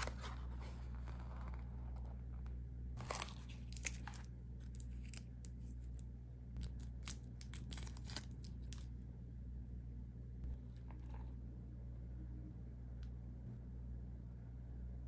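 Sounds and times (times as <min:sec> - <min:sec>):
paper wrapper crinkling and tearing: 0:00.0 - 0:01.7, 0:03.0 - 0:06.0, 0:06.6 - 0:08.9
faint low hum: 0:00.0 - 0:15.0.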